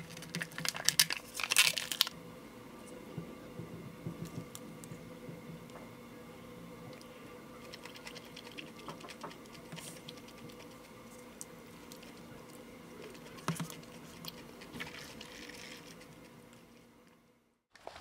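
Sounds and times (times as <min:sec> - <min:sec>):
faint steady hum: 0:00.0 - 0:18.0
eating sounds: 0:06.9 - 0:11.2.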